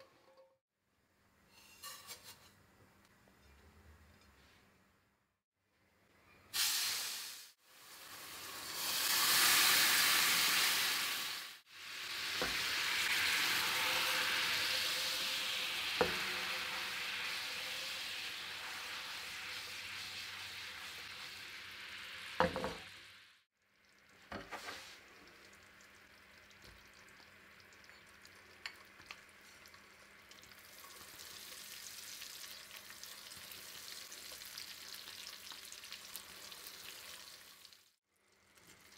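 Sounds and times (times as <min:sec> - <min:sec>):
milk and sugar boiling and sizzling: 0:06.4 - 0:38.9.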